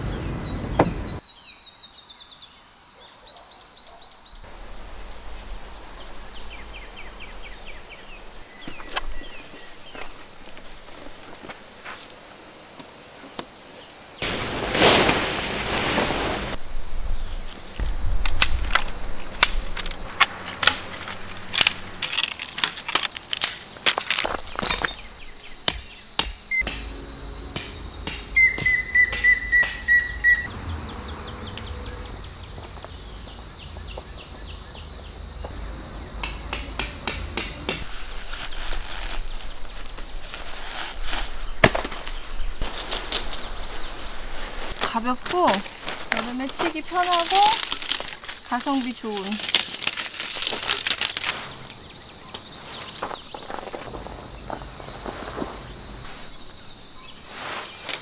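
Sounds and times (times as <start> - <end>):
high insect drone: 4.2 - 58.0
gear rustling: 18.4 - 25.3, 45.3 - 51.7
bird whistling: 27.6 - 30.5.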